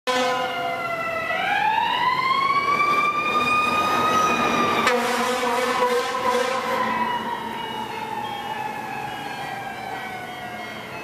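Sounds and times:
low steady horn blast: 0:00.1 - 0:00.7, 0:04.8 - 0:07.0
fire engine siren wailing: 0:00.1 - 0:11.0.

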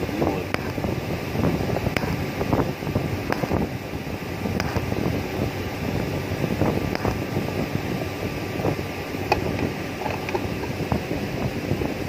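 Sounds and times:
welding rushing noise: 0:00.0 - 0:12.0.

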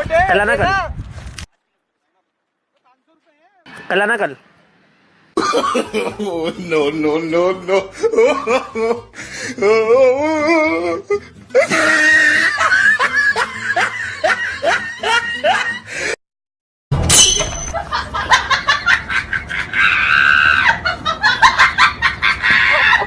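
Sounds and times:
person laughing loudly: 0:05.4 - 0:15.9, 0:17.7 - 0:23.0.

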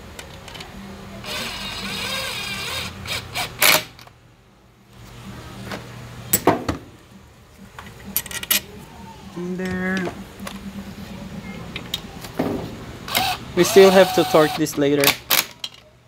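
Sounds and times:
steady low hum: 0:00.0 - 0:14.6
ratchet working on bolts: 0:01.2 - 0:04.0, 0:13.1 - 0:15.6.

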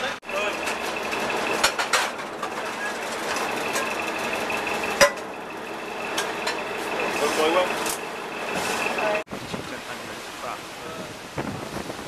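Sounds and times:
steady mechanical hum: 0:00.0 - 0:09.3
metal pans clattering: 0:00.6 - 0:04.2.

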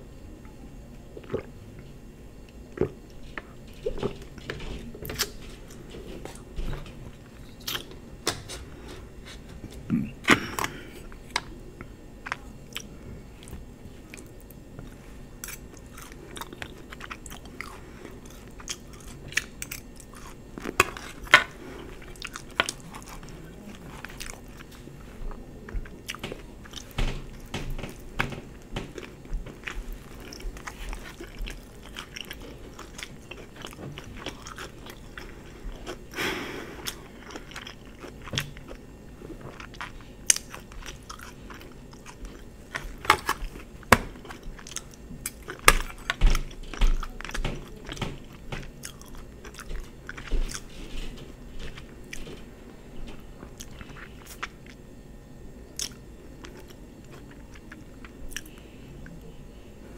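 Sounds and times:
chewing and biting: 0:12.2 - 0:36.2, 0:36.8 - 0:52.4, 0:53.4 - 0:54.8, 0:55.7 - 0:59.2.

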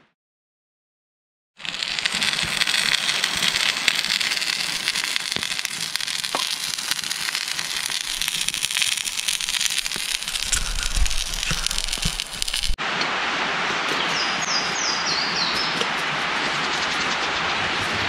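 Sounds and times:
sharp fire pops: 0:01.6 - 0:12.8
campfire crackling and hissing: 0:01.6 - 0:18.0
low rumble: 0:10.2 - 0:12.8.

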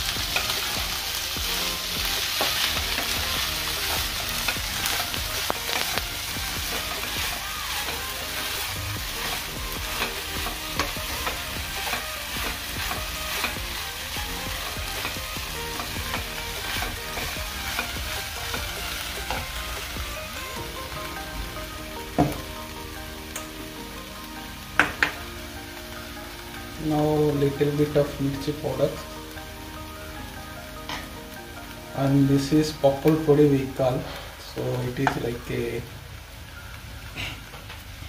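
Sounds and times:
spatula scraping a pan: 0:00.0 - 0:20.0
puffed rice sizzling in a pan: 0:00.0 - 0:38.0.

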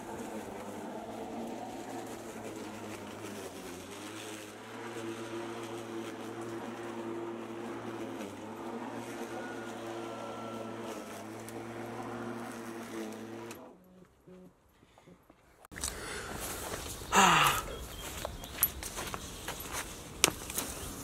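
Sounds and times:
electric lawn mower running: 0:00.0 - 0:13.8.

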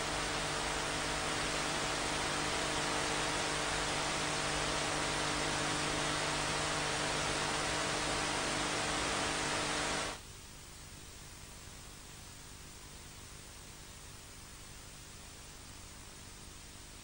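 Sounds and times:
electronic hiss: 0:00.0 - 0:10.2
low mains hum: 0:00.0 - 0:17.0.

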